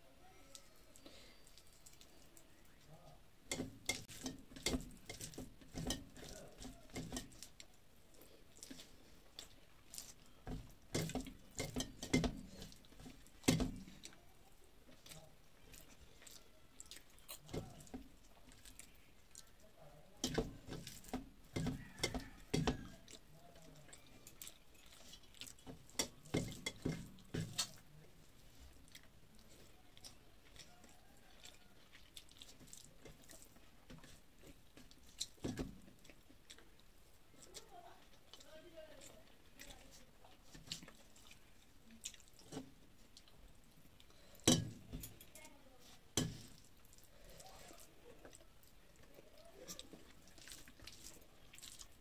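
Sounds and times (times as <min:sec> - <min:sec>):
chewing and swallowing: 0:00.6 - 0:02.8, 0:03.5 - 0:19.7, 0:20.5 - 0:44.5, 0:46.4 - 0:52.0.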